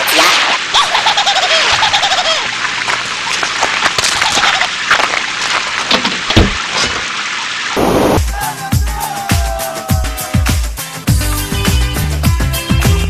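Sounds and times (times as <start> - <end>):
dense splashing hiss: 7.6 - 8.3.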